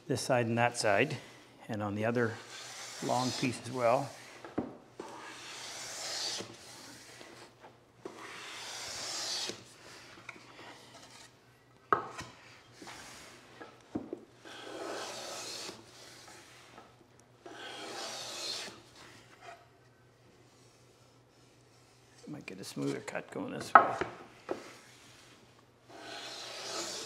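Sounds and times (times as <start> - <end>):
hand plane shaving wood: 2.3 - 4.4, 5.0 - 7.5, 8.1 - 10.1, 14.4 - 16.6, 17.5 - 18.8, 25.9 - 27.0.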